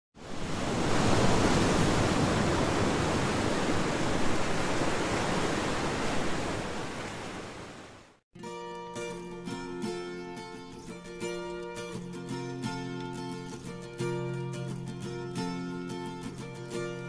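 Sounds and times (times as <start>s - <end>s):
ocean surf rushing: 0.2s - 8.2s
acoustic guitar music: 8.4s - 17.0s.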